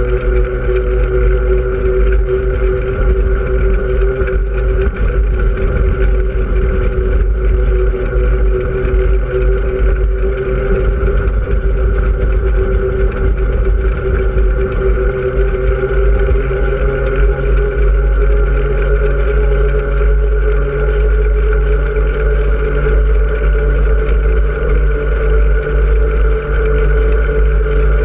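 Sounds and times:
vehicle engine running: 0:00.0 - 0:28.0
wind and road noise: 0:02.0 - 0:17.9.

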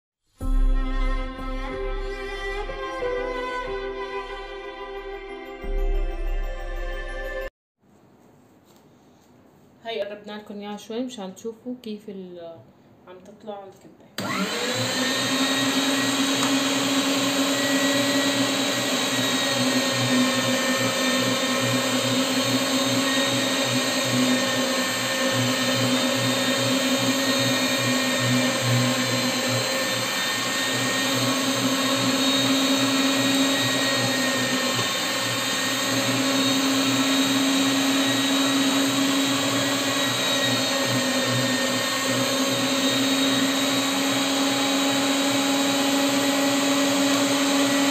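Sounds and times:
electric meat grinder running: 0:14.2 - 0:47.9.

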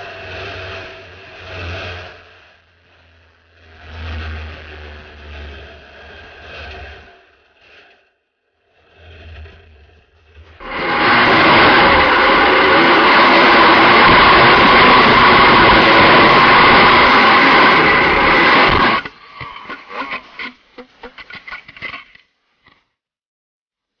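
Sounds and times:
go-kart engine running hard: 0:10.6 - 0:19.1.

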